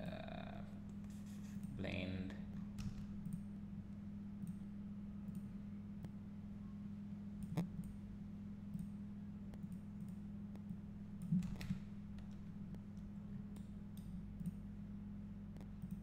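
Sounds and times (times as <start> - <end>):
low electrical hum: 0.0 - 16.0
computer mouse clicks: 7.4 - 8.0, 9.5 - 14.6, 15.6 - 16.0.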